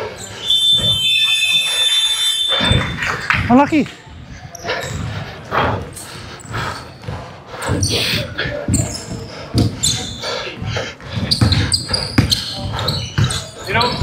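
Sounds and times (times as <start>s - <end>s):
sneakers squeaking on floor: 0.0s - 5.2s, 5.9s - 14.0s
basketball bouncing on hardwood: 11.2s - 12.4s.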